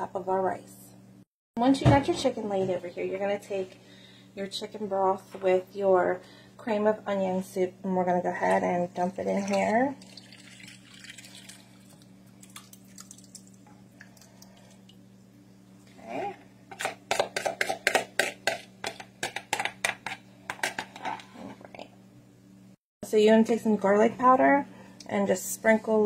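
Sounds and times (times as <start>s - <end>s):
thick liquid pouring into dish: 10.0s - 14.9s
spoon scraping bowl: 16.7s - 20.2s.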